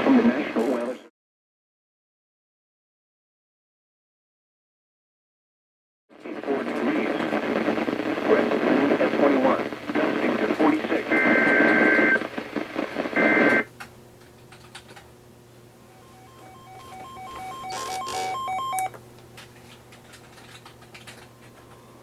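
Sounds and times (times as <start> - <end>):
radio static: 0.0 - 1.1, 6.1 - 13.7, 16.2 - 18.9
warbling data bursts: 15.9 - 18.9
rapid electronic beeps: 16.0 - 18.9.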